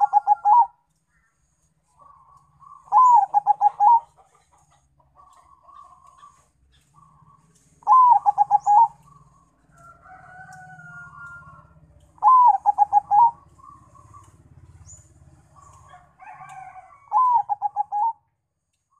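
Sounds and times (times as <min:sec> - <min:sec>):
dove cooing: 0:00.0 - 0:00.8, 0:02.0 - 0:04.5, 0:07.0 - 0:09.5, 0:11.1 - 0:14.7, 0:15.5 - 0:18.2
other birds calling: 0:00.0 - 0:18.9.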